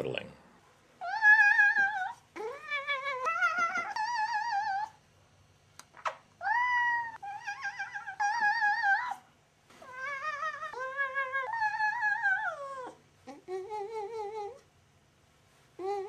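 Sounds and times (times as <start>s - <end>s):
cat yowling: 1.0s - 5.0s, 6.4s - 9.2s, 9.8s - 13.0s.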